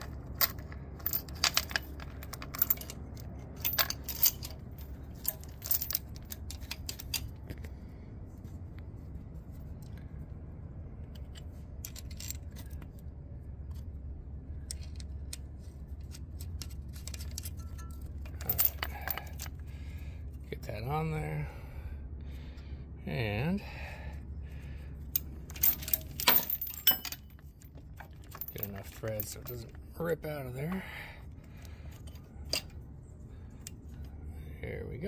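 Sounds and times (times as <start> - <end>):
chain and bolt clinking: 0.0 - 7.8, 11.0 - 13.0, 14.6 - 20.7, 24.6 - 34.3
steady low rumble: 0.0 - 35.0.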